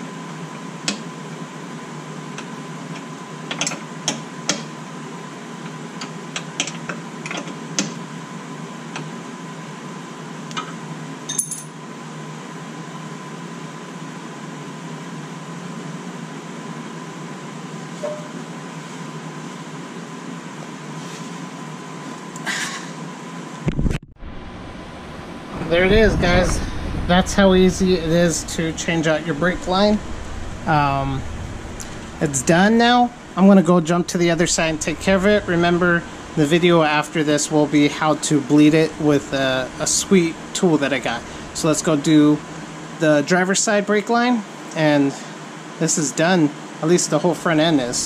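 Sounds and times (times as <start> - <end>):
steady low hum: 0.0 - 48.0
metal tools clinking: 11.3 - 11.8.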